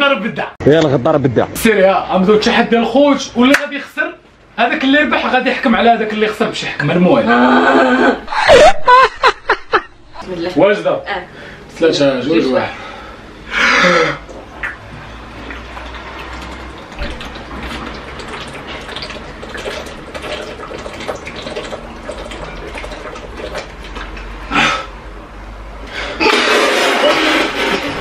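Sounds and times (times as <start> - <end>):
people gulping water: 13.5 - 25.1, 25.9 - 28.0
water sprayed from mouth: 26.2 - 28.0.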